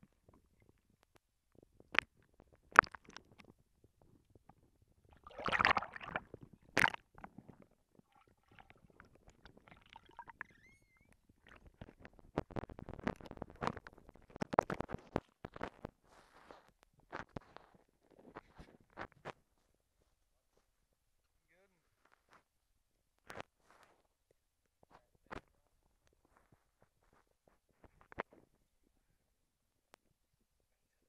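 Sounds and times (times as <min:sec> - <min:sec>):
fish thrashing underwater: 0:02.0 - 0:03.4, 0:05.1 - 0:15.1
water gurgling: 0:02.0 - 0:03.4, 0:05.1 - 0:15.2
rush of water: 0:05.2 - 0:06.2.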